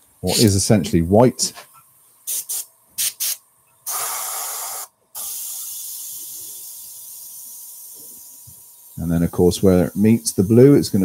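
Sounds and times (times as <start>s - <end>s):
airbrush air puffs: 2.2s - 11.0s
airbrush spray hiss: 2.2s - 11.0s.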